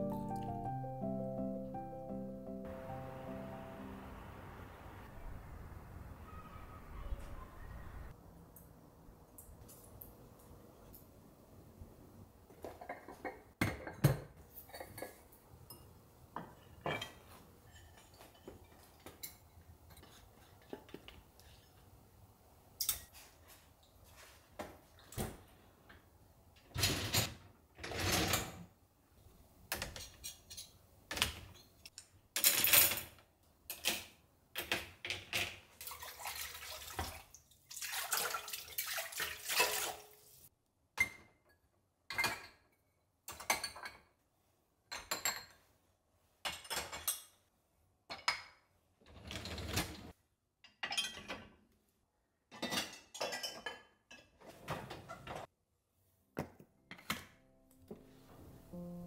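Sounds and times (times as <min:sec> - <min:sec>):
dishes and utensils clinking: 0:12.6 - 0:21.0, 0:50.7 - 0:51.5, 0:52.5 - 0:54.4
running water: 0:35.8 - 0:40.4.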